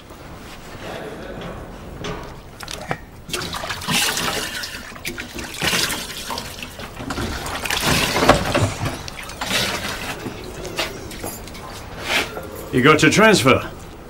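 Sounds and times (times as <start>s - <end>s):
water splashing in a washbowl: 2.6s - 10.9s.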